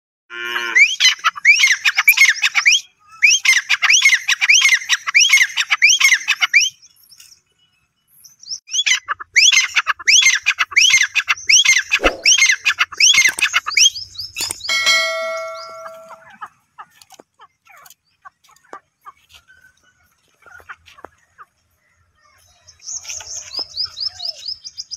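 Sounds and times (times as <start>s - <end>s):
francolin calling: 8.7s - 16.9s.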